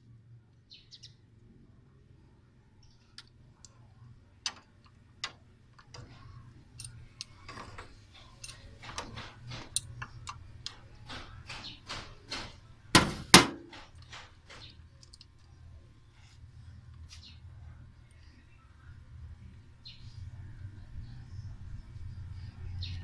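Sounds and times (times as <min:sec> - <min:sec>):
wrench clicking on metal: 0:04.4 - 0:12.0
loud knocks: 0:10.7 - 0:14.7.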